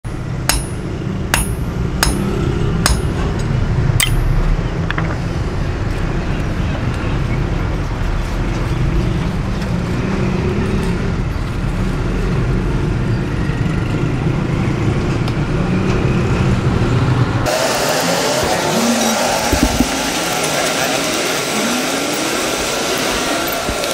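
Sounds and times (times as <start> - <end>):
hammer strikes ringing on anvil: 0.1 - 3.2, 4.0 - 4.6.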